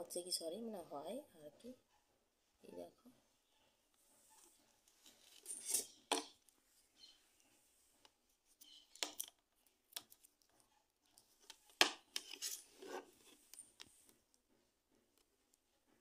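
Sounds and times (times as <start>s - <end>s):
rustling and scraping: 3.9s - 9.3s, 10.1s - 16.0s.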